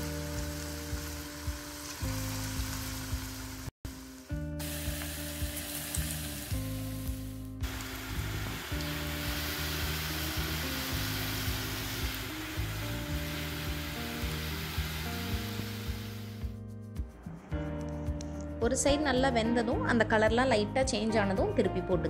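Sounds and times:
background music: 0:00.0 - 0:22.0.

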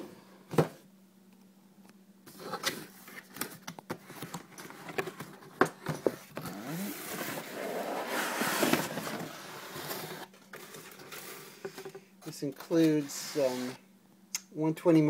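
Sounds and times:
cardboard rustling and scraping: 0:02.3 - 0:13.8.

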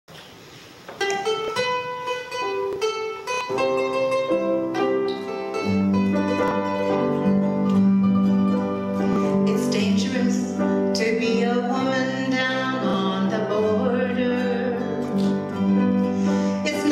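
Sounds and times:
acoustic folk ensemble: 0:00.1 - 0:16.9
plucked string melody: 0:00.9 - 0:16.9.

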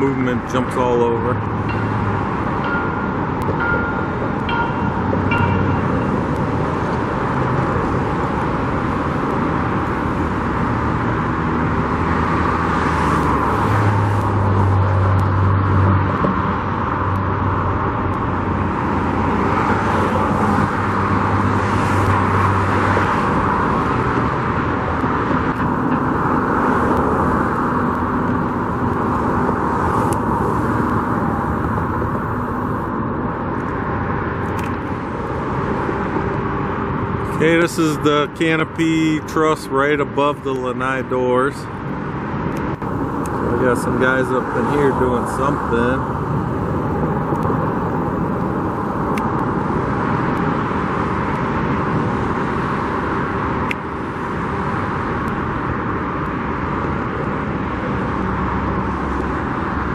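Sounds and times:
low engine hum: 0:00.0 - 0:59.9
road traffic passing: 0:00.0 - 0:59.9.

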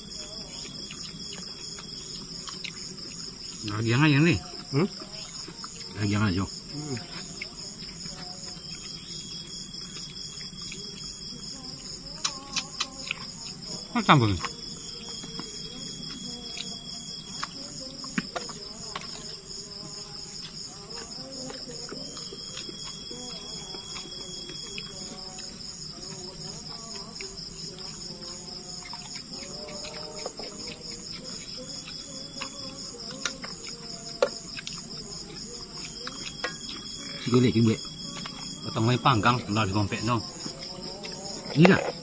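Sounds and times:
lower insect buzz: 0:00.0 - 0:42.0
night insects trilling: 0:00.0 - 0:42.0.

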